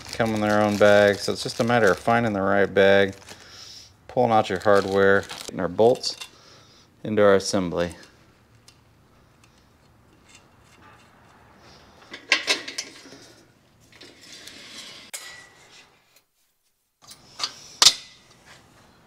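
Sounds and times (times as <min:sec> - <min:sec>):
metal parts clinking and knocking: 0:12.0 - 0:14.1.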